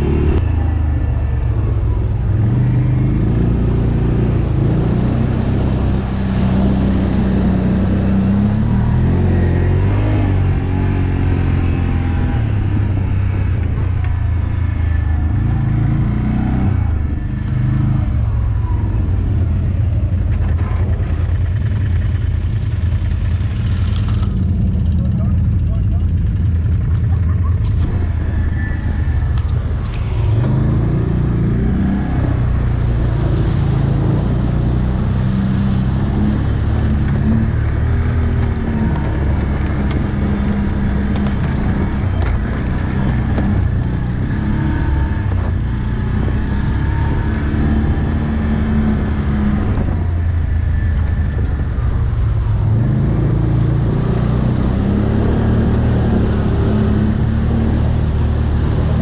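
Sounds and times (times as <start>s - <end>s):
quad engine revving: 0.0s - 13.5s, 26.5s - 50.2s, 52.6s - 59.0s.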